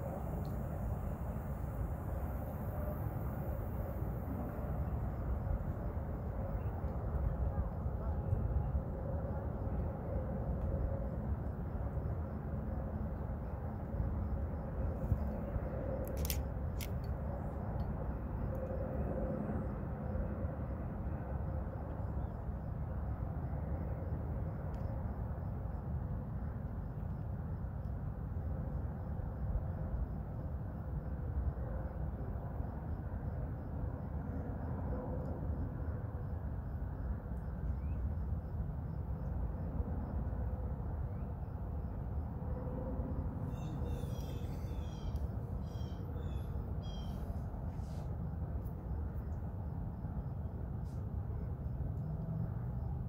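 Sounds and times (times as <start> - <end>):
wind roaring across microphone: 0.0 - 53.0
bird high calls: 43.5 - 47.3.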